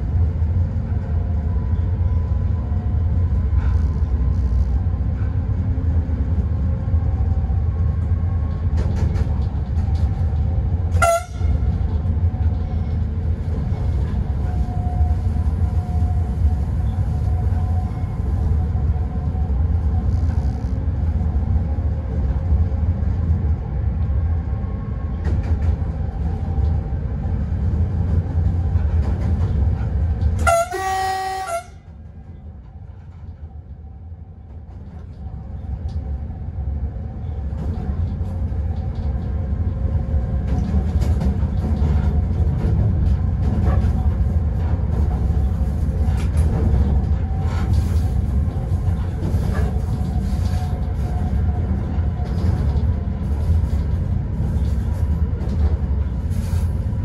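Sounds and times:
locomotive rumbling: 0:00.0 - 0:57.0
train horn blast: 0:10.9 - 0:11.7, 0:30.4 - 0:32.0.

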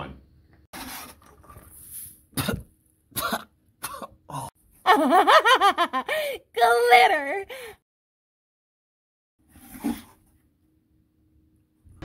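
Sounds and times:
man coughing and spluttering: 0:02.3 - 0:04.5.

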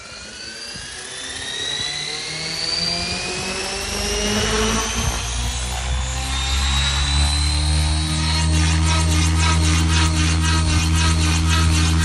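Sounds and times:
electric motor whine: 0:00.0 - 0:12.0
helicopter rotor noise: 0:00.0 - 0:12.0.

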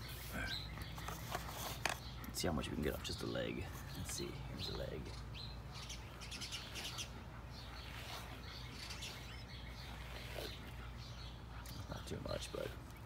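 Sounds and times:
brush swishing through fur: 0:06.4 - 0:11.0.

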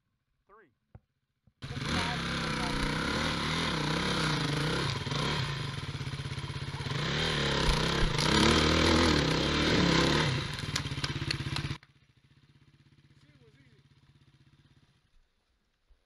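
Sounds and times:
dirt bike engine revving: 0:01.6 - 0:15.1.

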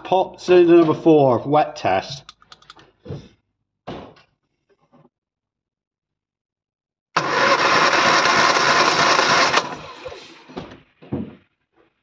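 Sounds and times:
engine cranking on starter motor: 0:07.2 - 0:10.8.

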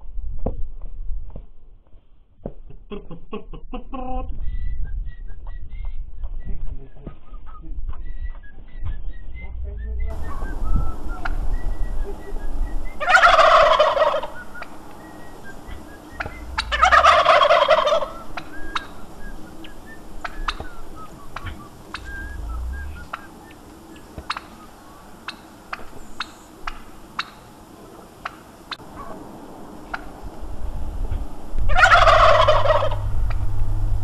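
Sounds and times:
turkey gobbling: 0:06.7 - 0:29.2, 0:29.8 - 0:30.1, 0:31.7 - 0:33.5.

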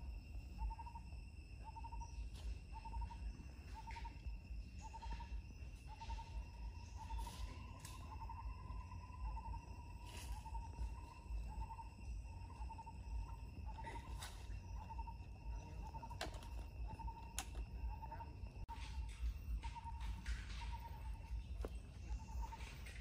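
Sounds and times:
insects whining with pulses: 0:00.0 - 0:23.0.

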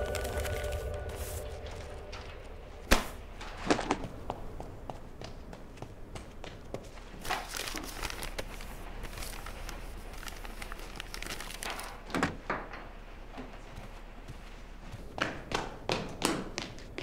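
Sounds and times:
paper and cloth rustling: 0:00.0 - 0:02.3, 0:06.9 - 0:12.1.

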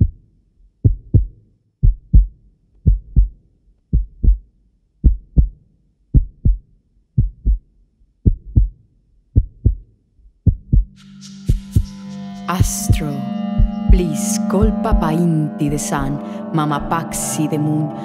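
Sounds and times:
slow heartbeat: 0:00.0 - 0:00.2, 0:00.8 - 0:08.8, 0:09.4 - 0:12.0, 0:12.6 - 0:15.2.

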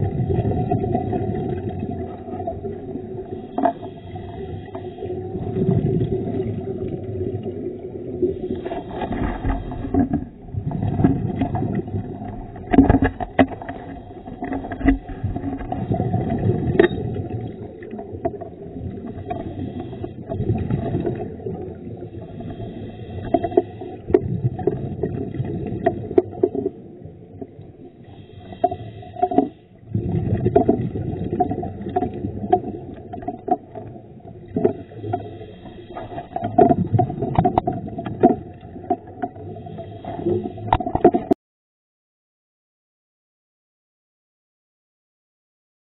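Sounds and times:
underwater rumbling and bubbles: 0:00.0 - 0:41.4
underwater clicks: 0:08.6 - 0:19.6, 0:40.2 - 0:41.4.

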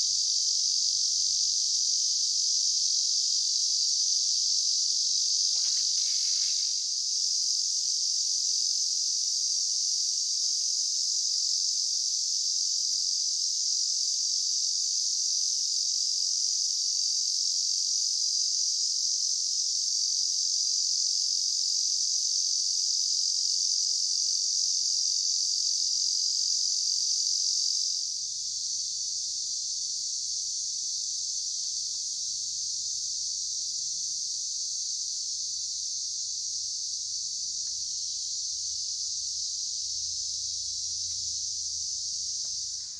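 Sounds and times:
insects shrilling: 0:05.2 - 0:07.0.

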